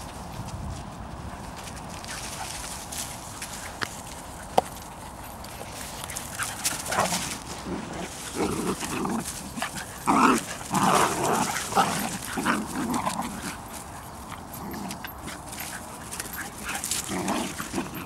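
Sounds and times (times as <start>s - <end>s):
dogs yipping and whimpering: 8.2s - 18.0s.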